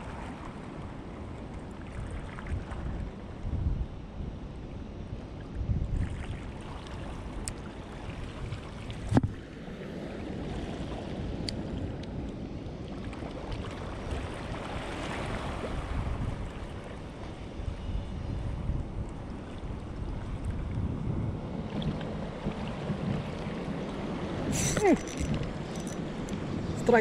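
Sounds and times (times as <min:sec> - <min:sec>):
wind rumbling on microphone: 0:00.0 - 0:27.0
sea waves washing: 0:06.0 - 0:17.8, 0:18.4 - 0:27.0.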